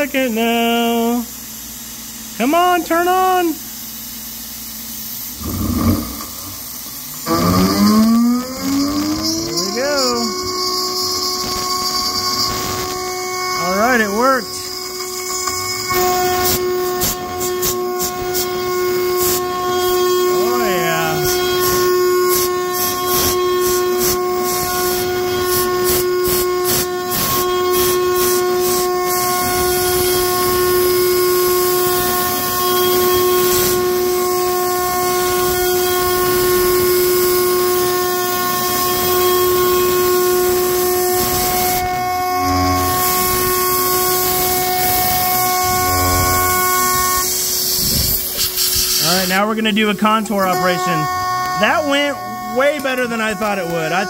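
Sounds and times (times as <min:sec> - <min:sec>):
air blast hiss: 0:03.5 - 0:34.6, 0:39.0 - 0:49.5
cnc router spindle whining: 0:05.3 - 0:48.6, 0:50.3 - 0:54.0
end mill cutting aluminium: 0:05.4 - 0:49.3.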